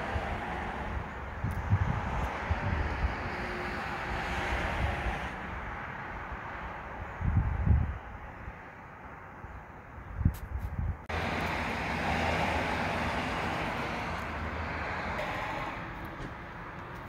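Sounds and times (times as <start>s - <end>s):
road traffic rushing: 0.0s - 17.0s
wind thumps on microphone: 1.4s - 3.3s, 7.2s - 8.0s, 10.2s - 11.1s.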